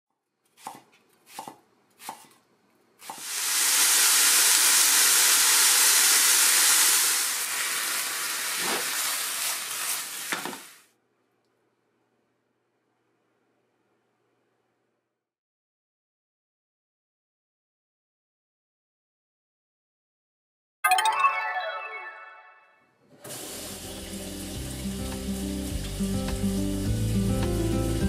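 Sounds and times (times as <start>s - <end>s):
knife slicing on wooden board: 0.5s - 2.4s
meat sizzling in a frying pan: 3.2s - 10.8s, 23.4s - 28.0s.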